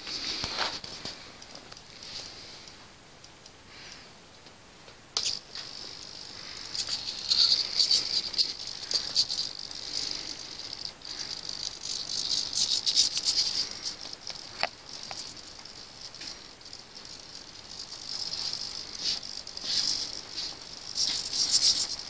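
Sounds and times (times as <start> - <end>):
servos buzzing and rattling: 5.2 - 22.0.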